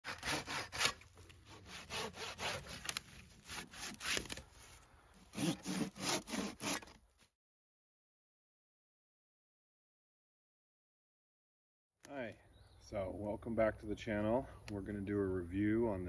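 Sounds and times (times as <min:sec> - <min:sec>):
hand saw cutting wood: 0:00.0 - 0:04.7, 0:05.3 - 0:07.0.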